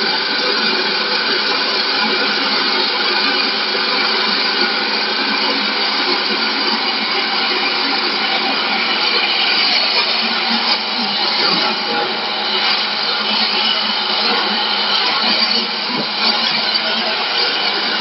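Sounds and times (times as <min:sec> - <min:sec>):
wood lathe whirring: 0:00.0 - 0:18.0.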